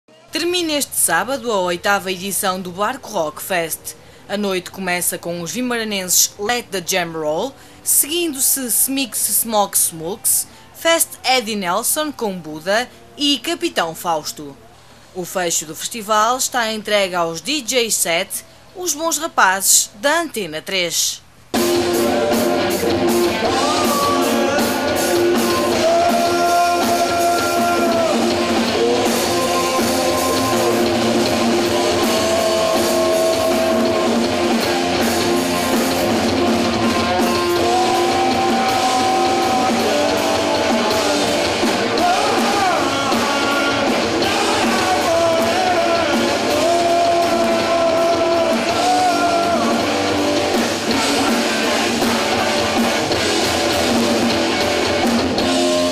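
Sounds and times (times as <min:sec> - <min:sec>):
live rock band playing: 0:21.5 - 0:55.9.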